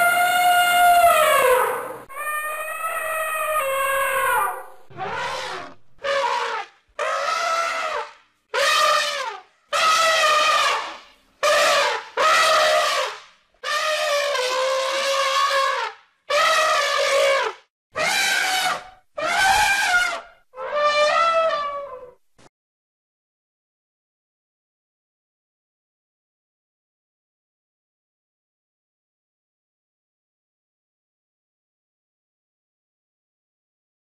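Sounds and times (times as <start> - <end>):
elephant trumpeting: 0.0 - 22.2.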